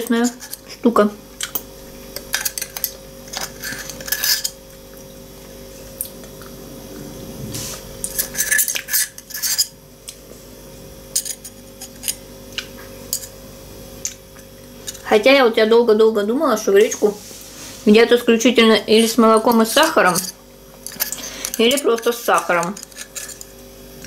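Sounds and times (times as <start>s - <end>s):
metal spoon scraping a pot: 2.3s - 4.6s, 8.0s - 9.7s, 19.0s - 23.5s.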